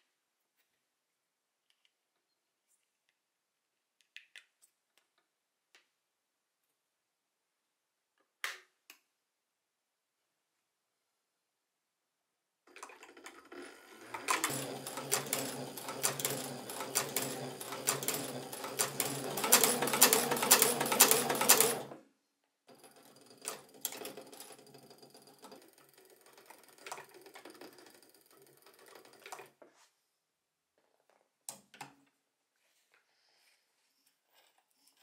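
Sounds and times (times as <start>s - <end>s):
sewing machine needle clatter: 12.7s - 22.0s, 22.7s - 29.6s.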